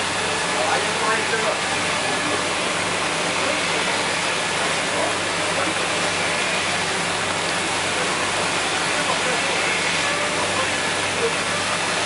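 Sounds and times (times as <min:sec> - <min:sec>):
machinery rushing noise: 0:00.0 - 0:12.0.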